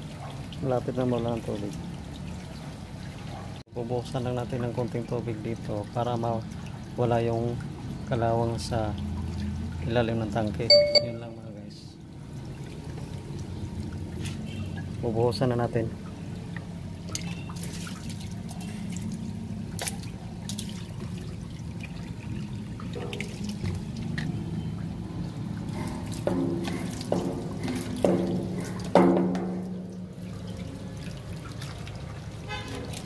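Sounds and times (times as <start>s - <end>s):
water running from drain valve: 12.0s - 33.0s.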